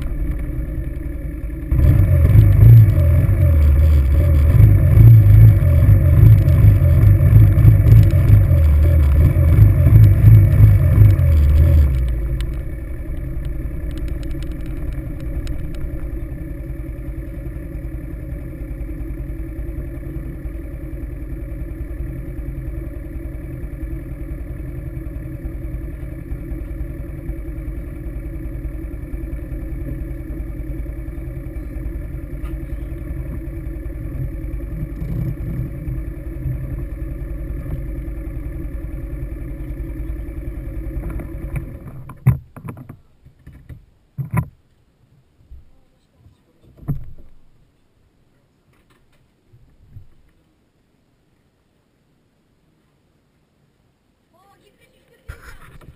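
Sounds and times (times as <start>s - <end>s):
quad bike engine revving and idling: 0.0s - 42.2s.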